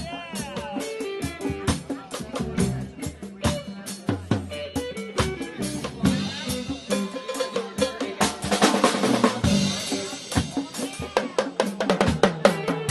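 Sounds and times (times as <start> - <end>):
drum kit hits and cymbal crashes: 0.0 - 12.9
live band playing: 0.0 - 12.9.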